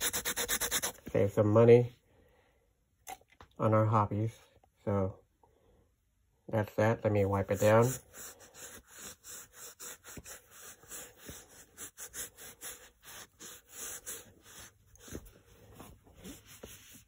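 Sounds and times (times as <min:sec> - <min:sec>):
towel rubbing on chrome: 0:07.2 - 0:17.0.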